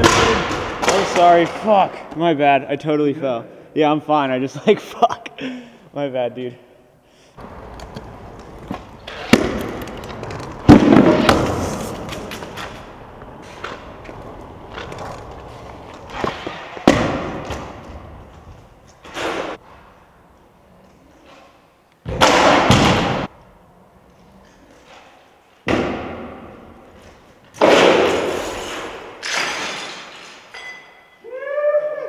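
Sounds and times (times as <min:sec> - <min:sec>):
scooter wheels rolling on concrete: 0:07.4 - 0:21.8
scooter landing clacks: 0:07.7 - 0:19.6.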